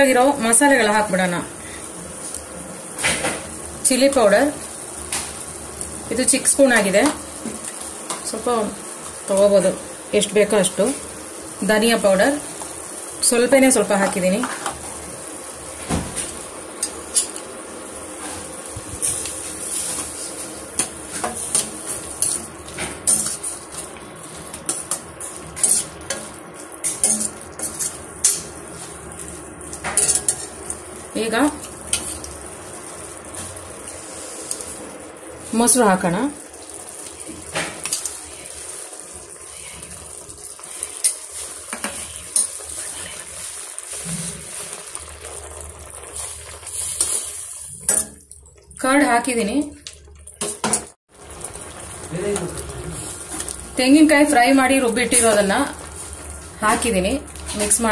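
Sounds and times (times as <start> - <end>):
frying sizzle: 0.0 - 57.9
metal spatula scraping a pan: 19.0 - 23.9, 24.5 - 28.6, 29.8 - 30.6.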